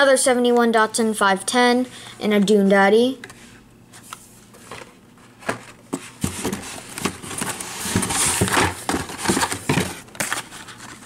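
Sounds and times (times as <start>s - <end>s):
plastic blister packs clattering: 4.7s - 11.0s.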